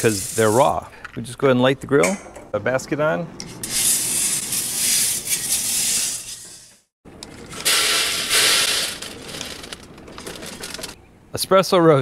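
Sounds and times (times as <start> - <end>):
coffee beans rattling in metal basket: 7.5 - 11.0.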